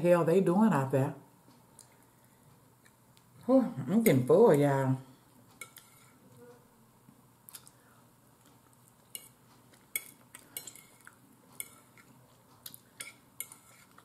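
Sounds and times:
fork scraping a plate: 0:05.6 - 0:06.6, 0:09.1 - 0:14.0.

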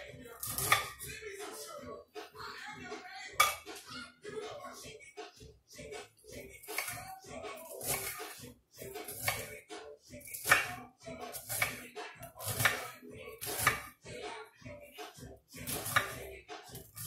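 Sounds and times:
knife chopping on a stone board: 0:00.4 - 0:01.0, 0:03.4 - 0:03.8, 0:06.6 - 0:09.5, 0:10.3 - 0:14.0, 0:15.6 - 0:17.0.

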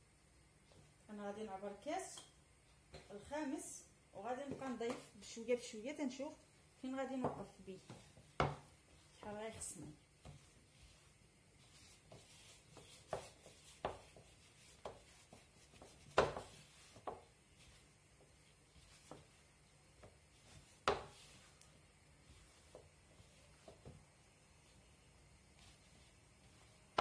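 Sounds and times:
hands kneading dough: 0:04.2 - 0:06.2, 0:06.8 - 0:27.0
dough thumping against bowl: 0:07.2 - 0:08.7, 0:15.8 - 0:17.3, 0:20.8 - 0:21.2.

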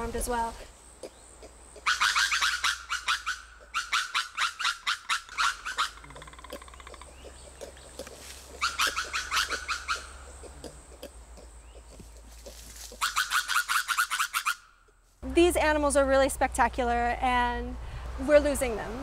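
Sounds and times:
lemurs giving yapping alarm calls: 0:01.0 - 0:14.9.

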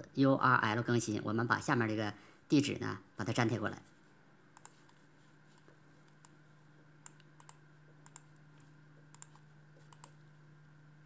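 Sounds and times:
faint low hum: 0:00.0 - 0:11.0
mouse and keyboard clicks: 0:07.0 - 0:08.4, 0:09.1 - 0:10.2.

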